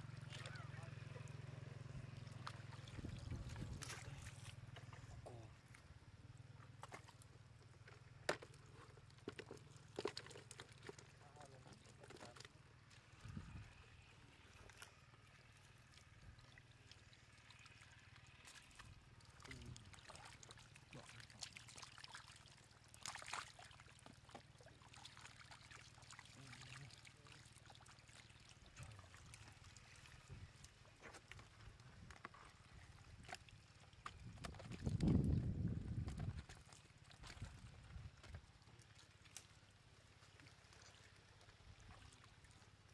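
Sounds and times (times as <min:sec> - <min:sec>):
fish splashing in water: 0:08.5 - 0:35.4.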